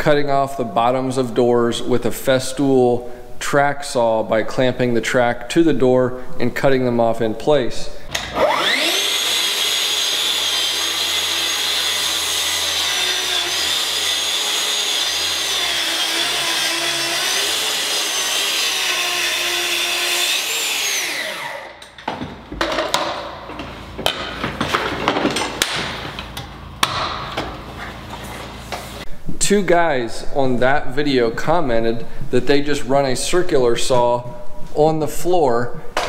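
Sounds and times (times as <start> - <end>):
track saw motor whine: 8.1 - 21.9.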